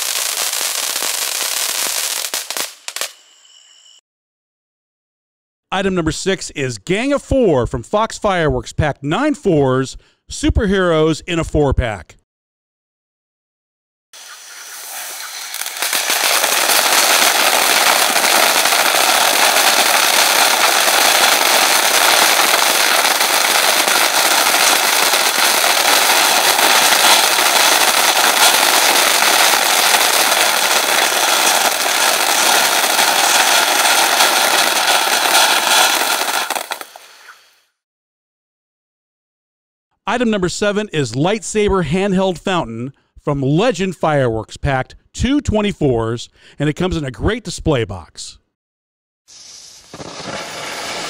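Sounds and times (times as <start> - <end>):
firework fountains hissing and crackling: 0.0 - 3.6, 14.2 - 37.7, 49.3 - 51.0.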